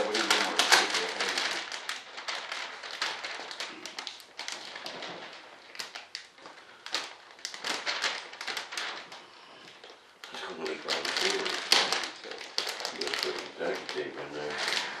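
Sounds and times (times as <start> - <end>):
plastic film crinkling: 0.0 - 15.0.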